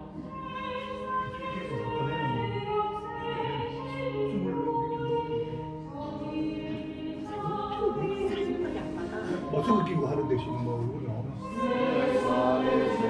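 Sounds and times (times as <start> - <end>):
choir singing held notes: 11.3 - 13.0.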